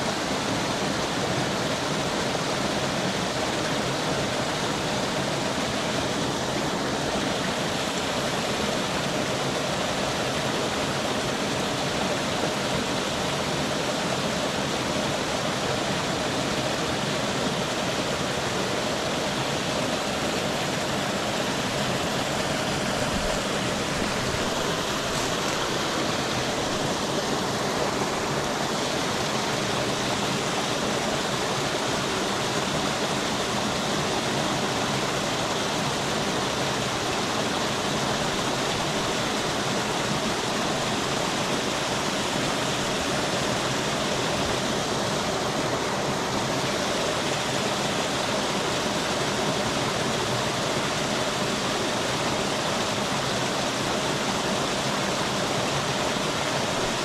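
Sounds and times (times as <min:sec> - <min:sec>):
stream water rushing: 0:00.0 - 0:57.0.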